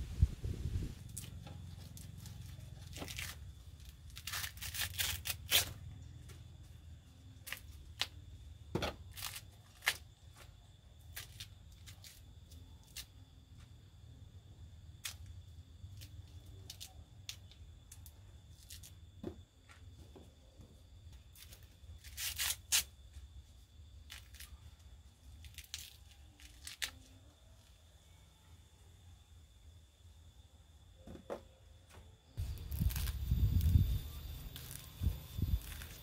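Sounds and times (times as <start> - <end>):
corn husks ripping: 1.1 - 5.9, 9.1 - 10.2, 21.3 - 22.9, 25.4 - 27.2, 32.4 - 36.0.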